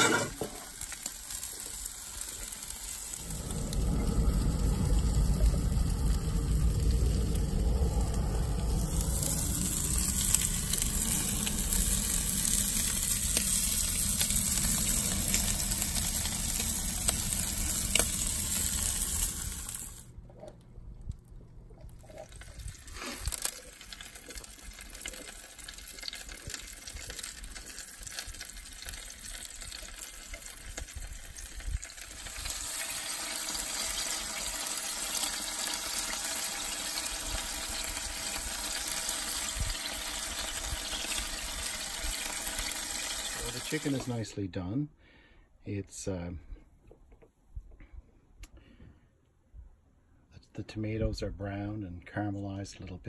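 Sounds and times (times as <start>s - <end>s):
sausages sizzling in skillet: 0.0s - 20.1s, 22.1s - 44.2s
heavy low rumble: 2.9s - 23.4s.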